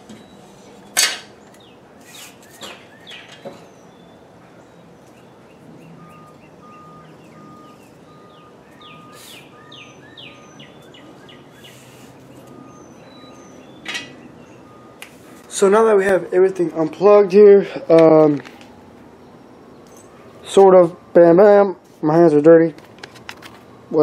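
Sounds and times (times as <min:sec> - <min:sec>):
birds chirping: 0:01.3 - 0:21.7
high beep: 0:06.0 - 0:10.6.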